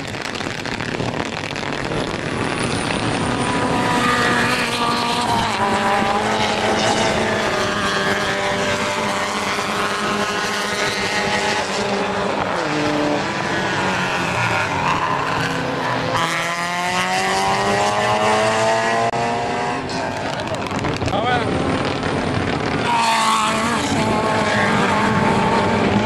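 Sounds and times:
car accelerating: 0:00.0 - 0:26.0
racing car engines running hard: 0:00.0 - 0:26.0.

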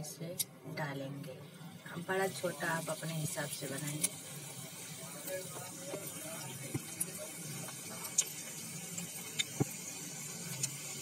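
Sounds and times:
batter sizzling in oil: 0:01.6 - 0:11.0.

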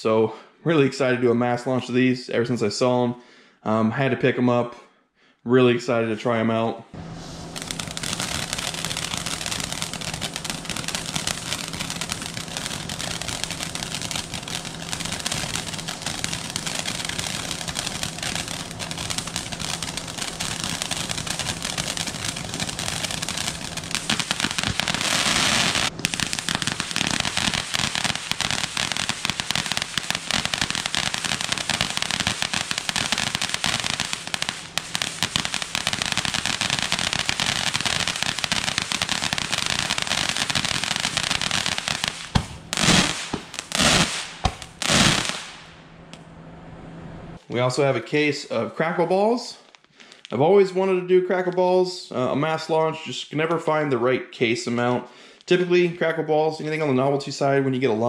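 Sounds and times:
firework bursts: 0:07.0 - 0:46.2
fountain firework crackling: 0:07.0 - 0:46.2.

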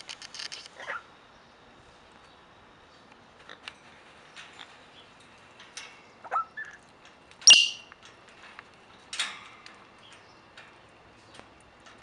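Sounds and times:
parrot calling: 0:06.2 - 0:06.8, 0:07.4 - 0:07.9.

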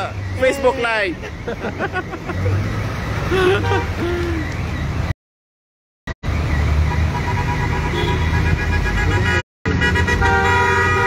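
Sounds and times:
vehicle driving through water: 0:01.4 - 0:05.1
car horn: 0:03.5 - 0:04.0, 0:06.8 - 0:11.0.

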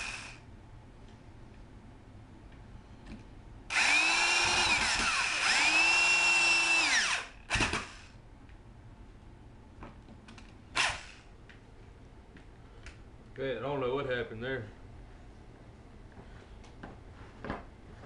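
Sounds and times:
electric drill whining: 0:00.0 - 0:00.4, 0:03.7 - 0:08.1, 0:10.8 - 0:11.2.

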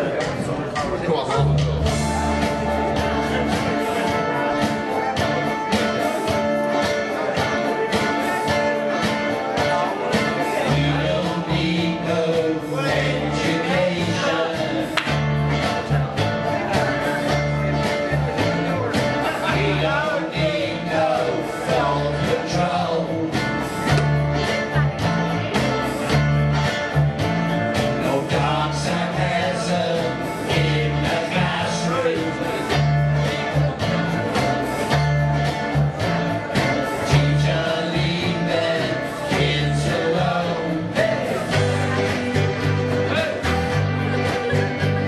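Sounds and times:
electric bass playing: 0:00.0 - 0:45.0
electric guitar: 0:00.0 - 0:45.0
man singing: 0:07.1 - 0:25.4, 0:27.7 - 0:35.0, 0:36.6 - 0:45.0.

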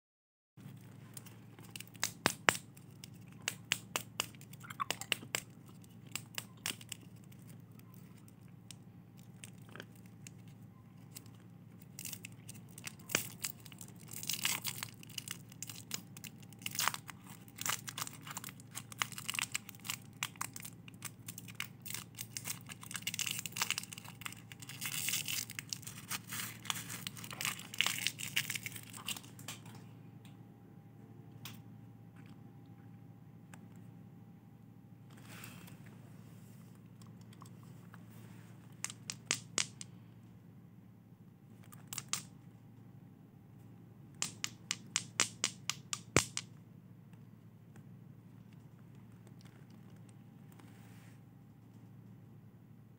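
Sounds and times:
wrapper crinkling and tearing: 0:01.0 - 0:29.7.

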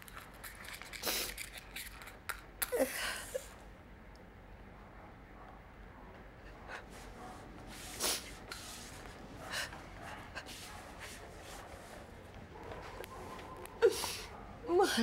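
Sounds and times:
woman sniffling: 0:13.8 - 0:14.3.

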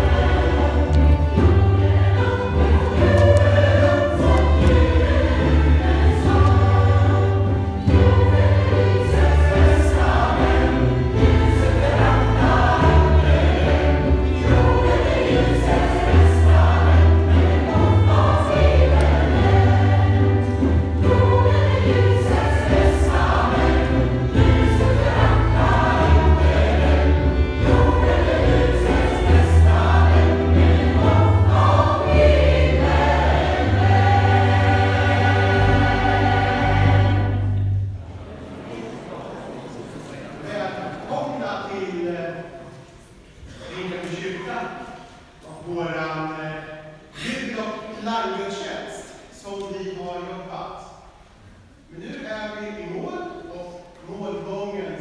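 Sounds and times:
choir singing a hymn: 0:00.0 - 0:42.8.

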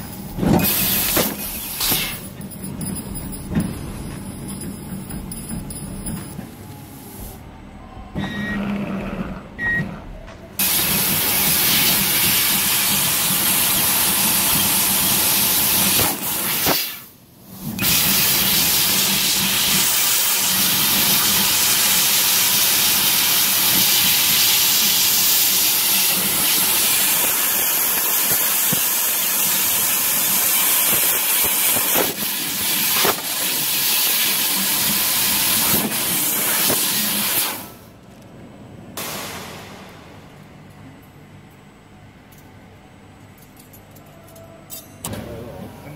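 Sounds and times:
laser cutter gas hissing: 0:00.1 - 0:02.3, 0:10.6 - 0:37.9, 0:39.0 - 0:39.9.

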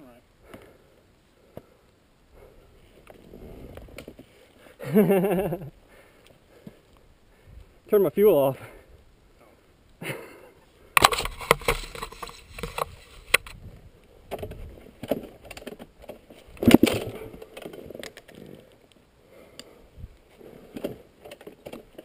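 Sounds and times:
knocks and clatter of a dirt bike: 0:14.3 - 0:18.5, 0:20.7 - 0:22.0.

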